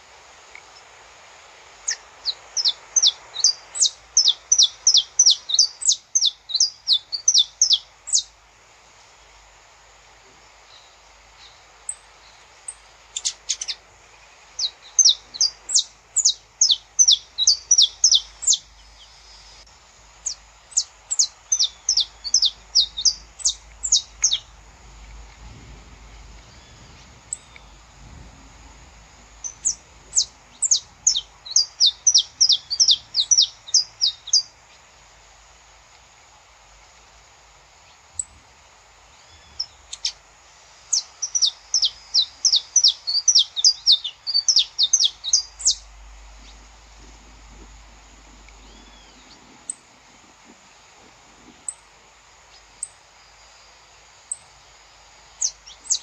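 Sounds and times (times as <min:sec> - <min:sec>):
finch singing: 0:01.9 - 0:08.3, 0:12.7 - 0:24.6, 0:29.4 - 0:34.6, 0:40.9 - 0:46.8, 0:47.7 - 0:49.8.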